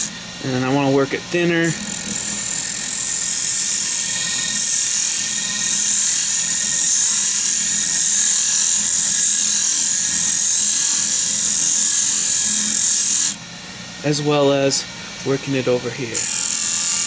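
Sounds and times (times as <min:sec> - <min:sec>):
chisel scraping spinning wood: 0:00.0 - 0:13.4
lathe humming: 0:00.0 - 0:17.0.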